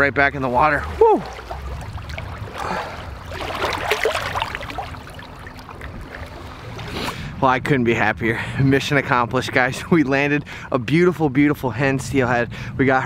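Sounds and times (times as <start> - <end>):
fish splashing in shallow water: 0.6 - 7.3.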